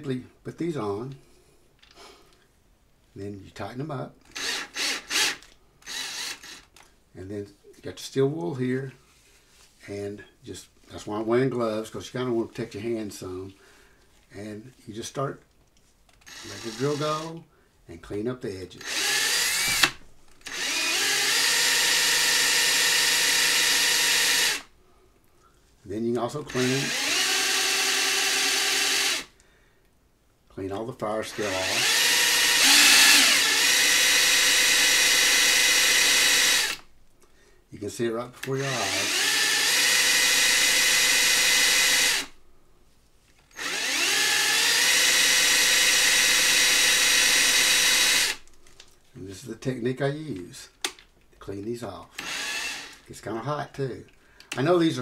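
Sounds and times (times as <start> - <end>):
cordless drill whining: 4.2 - 6.9, 16.1 - 17.4, 18.8 - 24.7, 26.5 - 29.4, 31.3 - 36.9, 38.5 - 42.4, 43.5 - 48.6, 52.1 - 53.1.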